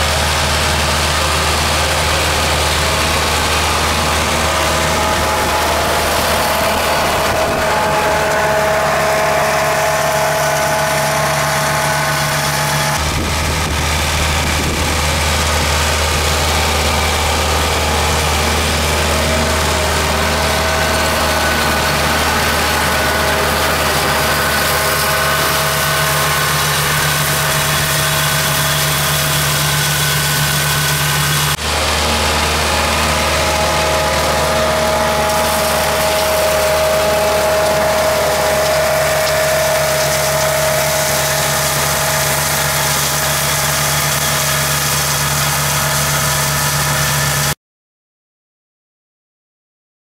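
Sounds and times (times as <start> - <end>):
flail mower cutting grass: 0.0 - 47.6
tractor engine running: 0.0 - 47.6.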